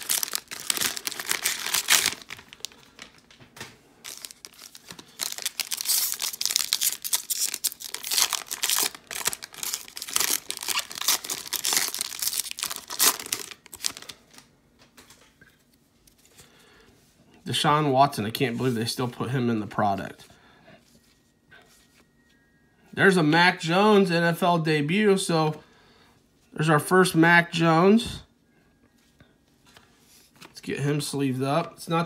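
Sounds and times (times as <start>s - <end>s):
cellophane wrapper crinkling and tearing: 0.0s - 3.4s, 4.0s - 14.5s.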